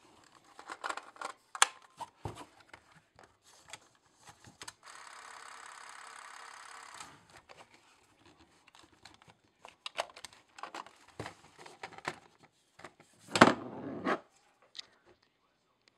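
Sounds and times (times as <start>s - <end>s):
plastic cartridge rattling: 8.2s - 12.4s.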